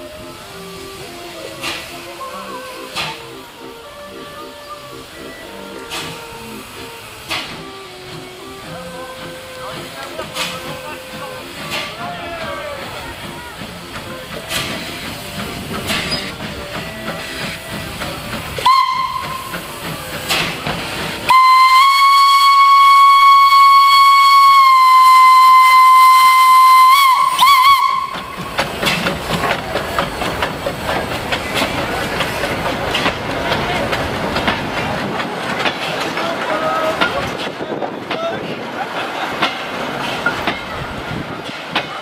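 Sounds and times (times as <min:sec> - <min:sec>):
steam hissing: 0:00.0 - 0:42.0
train rolling on track: 0:00.0 - 0:42.0
steam whistle: 0:18.6 - 0:20.5, 0:21.1 - 0:28.4.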